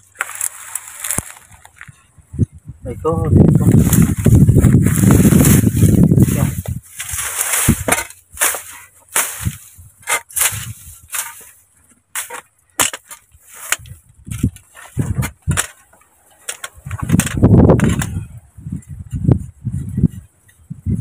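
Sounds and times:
weeds rustling: 0.0s - 2.0s, 3.3s - 20.1s
metal rod scraping into soil: 3.7s - 18.2s.

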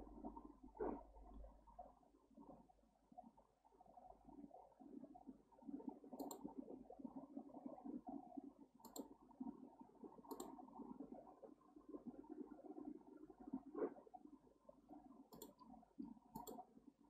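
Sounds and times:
faint low background noise: 0.0s - 17.0s
computer mouse clicks: 6.1s - 6.5s, 8.8s - 9.1s, 10.3s - 10.6s, 15.3s - 16.7s.

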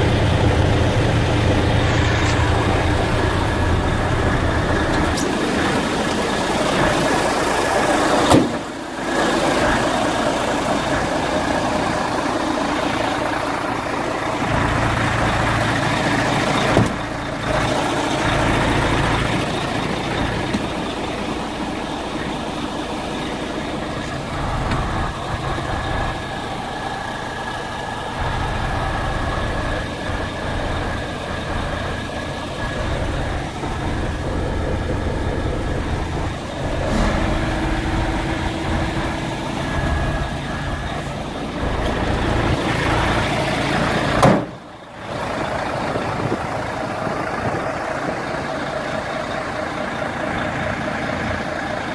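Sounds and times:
diesel truck engine idling: 0.0s - 51.9s.

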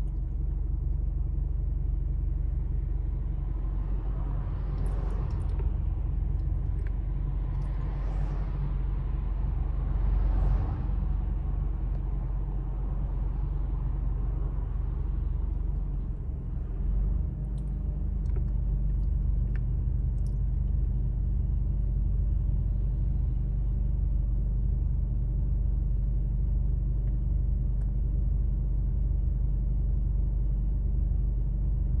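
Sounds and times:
low engine rumble: 0.0s - 32.0s
cars passing: 3.4s - 15.5s.

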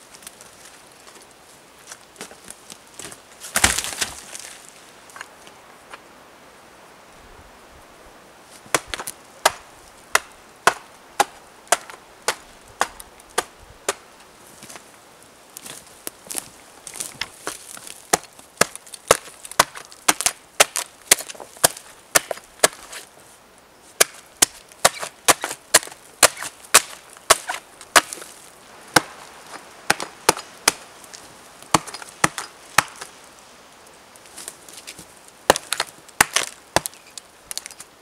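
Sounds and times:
hatchet chopping log: 3.5s - 4.2s, 8.7s - 14.0s, 18.1s - 22.9s, 24.0s - 28.3s, 28.9s - 29.2s, 29.9s - 30.8s, 31.7s - 33.1s, 35.5s - 37.7s.

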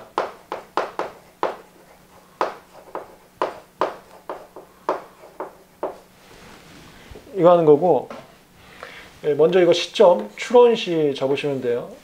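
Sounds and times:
chalk tapping and scraping on chalkboard: 0.0s - 6.6s.

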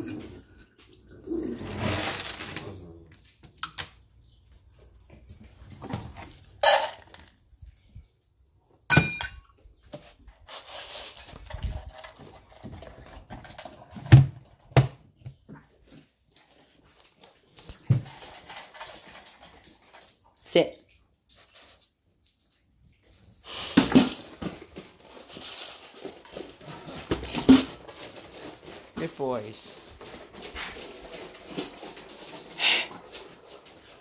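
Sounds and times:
kibble rattling in metal bowl: 6.5s - 7.4s, 10.2s - 14.0s, 16.4s - 20.3s, 23.5s - 34.0s.

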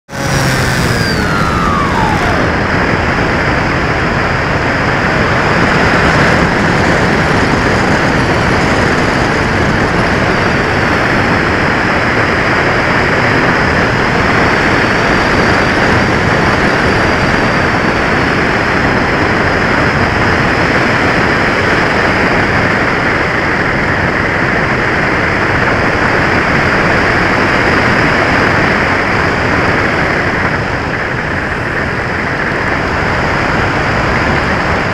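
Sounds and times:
falling whine: 0.0s - 3.6s
thin high tone: 0.1s - 2.6s.

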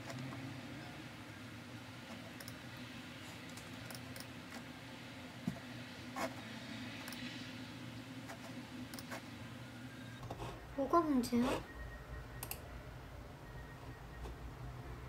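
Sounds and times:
steady low hum: 0.0s - 15.0s
keyboard and mouse clicks: 2.1s - 2.6s, 8.9s - 9.2s, 12.4s - 12.6s.

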